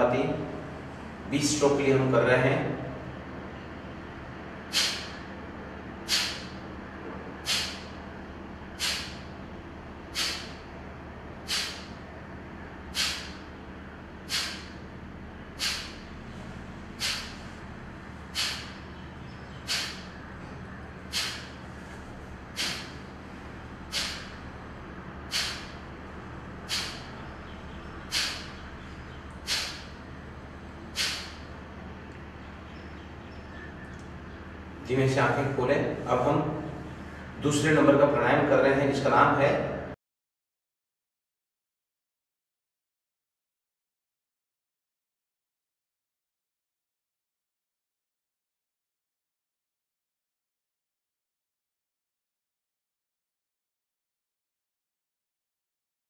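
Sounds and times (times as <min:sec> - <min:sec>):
man's forceful nasal exhalations: 0:04.7 - 0:05.2, 0:06.0 - 0:06.6, 0:07.4 - 0:08.0, 0:08.8 - 0:09.3, 0:10.1 - 0:10.6, 0:11.4 - 0:12.0, 0:12.9 - 0:13.4, 0:14.2 - 0:14.8, 0:15.5 - 0:16.2, 0:16.9 - 0:17.6, 0:18.2 - 0:18.9, 0:19.6 - 0:20.2, 0:21.0 - 0:23.2, 0:23.8 - 0:24.4, 0:25.2 - 0:25.9, 0:26.6 - 0:27.2, 0:28.0 - 0:28.6, 0:29.4 - 0:30.0, 0:30.9 - 0:31.5.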